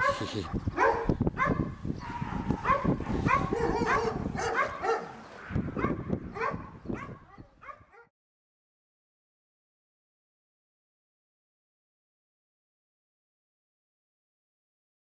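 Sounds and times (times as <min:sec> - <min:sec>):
dogs barking and yipping: 0:00.0 - 0:08.1.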